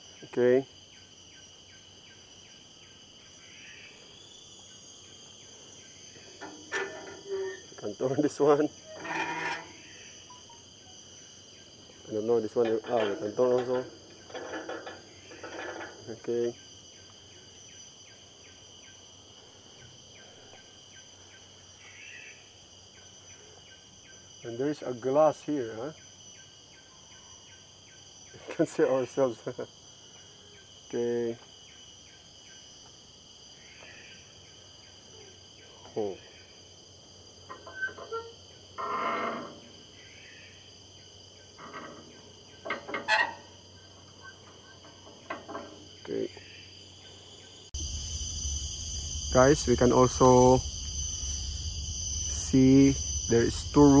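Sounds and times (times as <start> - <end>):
high-pitched insect drone: 0.0 - 54.0
knocks and clunks: 6.3 - 7.4, 12.4 - 16.3, 41.6 - 43.4, 44.3 - 46.1.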